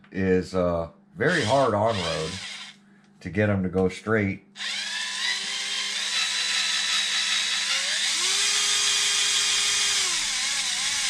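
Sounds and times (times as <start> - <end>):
cordless drill whining: 1.2 - 2.8, 4.6 - 11.0.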